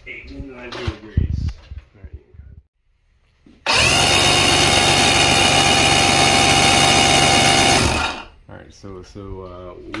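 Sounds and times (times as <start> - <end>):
outboard engine starter whirring: 3.6 - 8.3.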